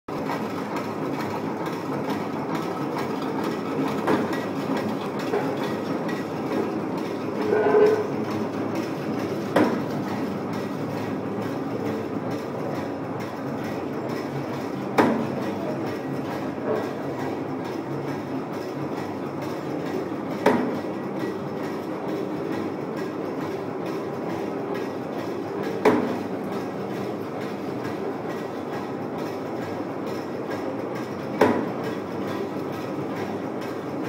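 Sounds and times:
spring machine clattering: 0.2 - 34.0
sharp machine knocks: 15.0 - 15.4, 31.4 - 31.7.

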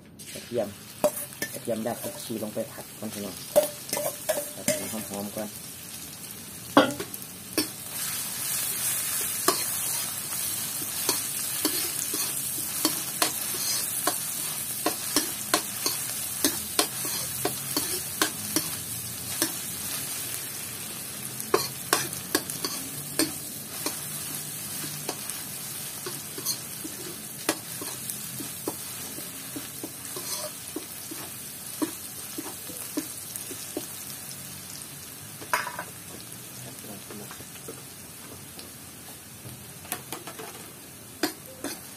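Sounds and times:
garlic sizzling in hot oil: 0.2 - 41.9
metal ladle scraping wok: 30.1 - 30.6.

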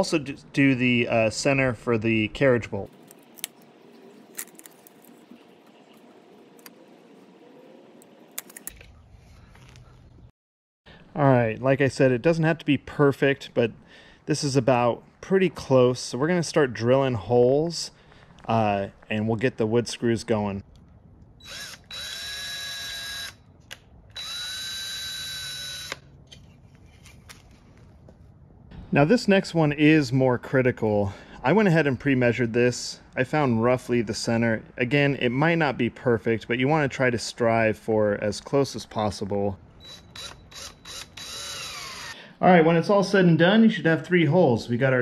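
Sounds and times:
cordless drill whining: 21.4 - 23.4, 24.1 - 26.1, 39.8 - 42.2
drill click: 39.8 - 42.2.

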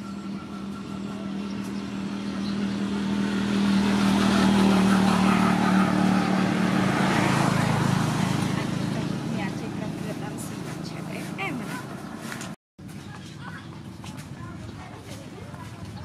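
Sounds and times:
engine humming: 0.0 - 16.0.

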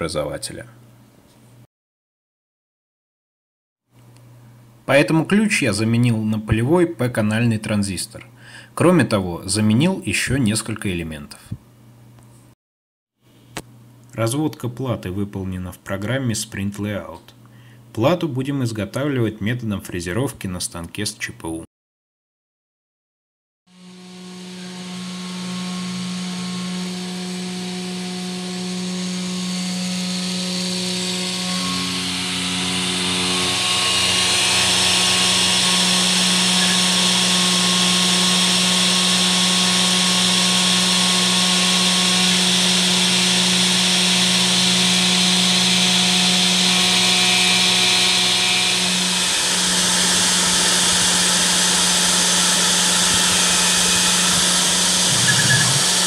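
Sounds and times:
router spindle motor hum: 23.7 - 56.0.

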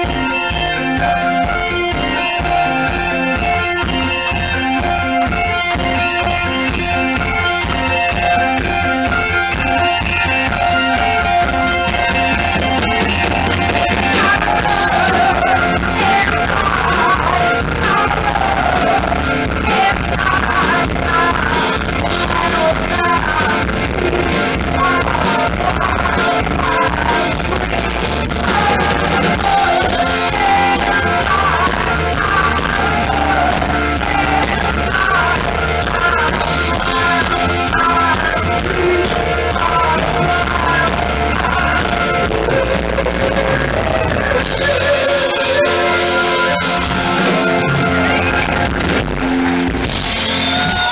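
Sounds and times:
electric guitar: 0.0 - 50.9
live rock band playing: 0.0 - 50.9
woman singing: 12.4 - 48.8.

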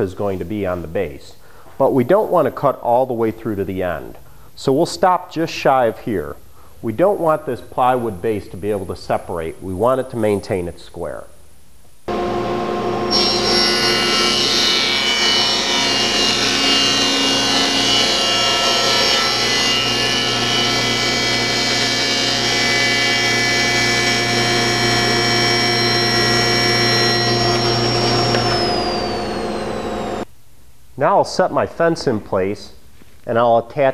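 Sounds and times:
table saw cutting plywood: 12.1 - 30.2.

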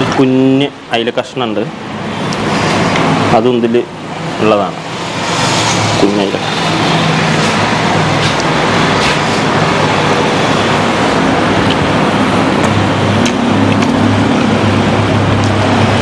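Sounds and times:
road traffic noise: 0.0 - 16.0
vehicle engine low hum: 4.1 - 16.0.

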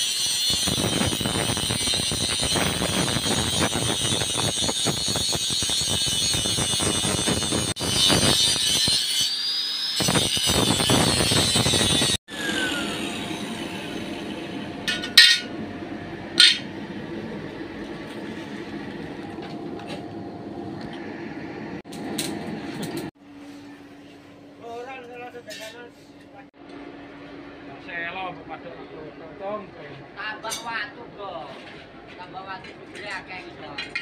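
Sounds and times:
angle grinder cutting steel: 0.0 - 15.5
sharp metallic knocks: 14.8 - 15.5.

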